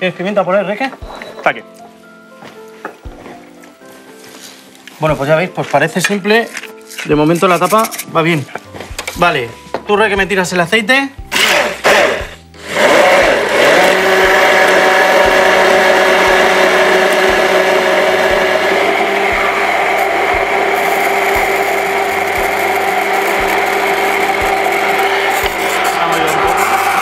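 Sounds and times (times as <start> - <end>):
immersion blender humming: 11.3 - 27.0.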